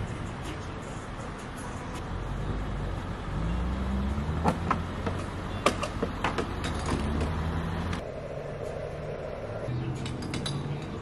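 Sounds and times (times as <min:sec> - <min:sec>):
steady low hum: 0:07.9 - 0:10.0.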